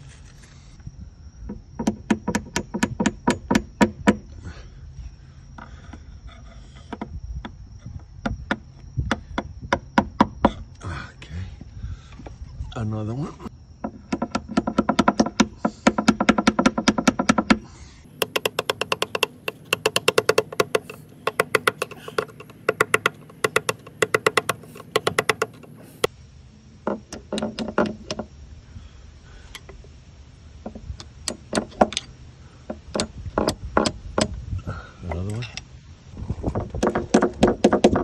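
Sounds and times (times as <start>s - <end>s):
hammer striking screwdriver: 18.2s - 25.7s.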